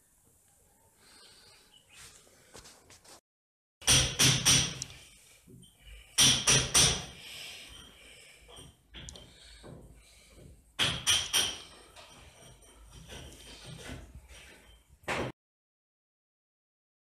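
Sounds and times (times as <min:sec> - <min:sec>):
quiet scuffing: 0:02.0 - 0:03.2
sharp knocks and thuds: 0:15.1 - 0:15.3.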